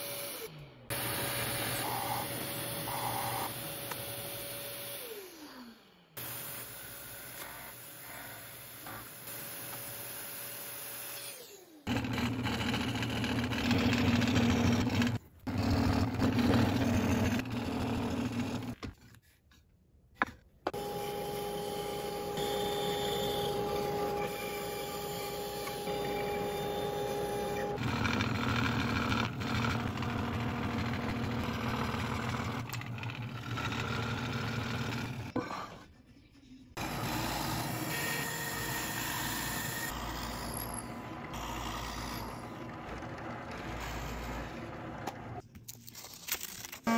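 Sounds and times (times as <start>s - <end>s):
scroll saw cutting: 0.0s - 18.8s, 20.7s - 35.4s, 36.8s - 45.4s
bandsaw humming: 20.7s - 35.3s, 36.8s - 45.4s
drill press spinning down: 36.8s - 45.4s.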